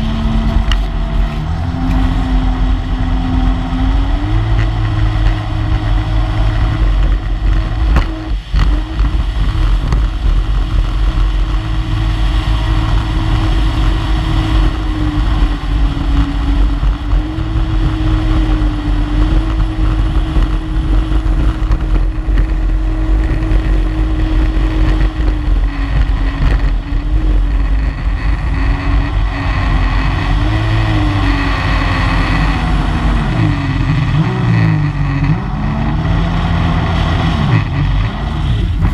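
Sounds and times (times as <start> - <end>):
powerboat engine droning: 0.0 - 38.9
wind: 0.0 - 38.9.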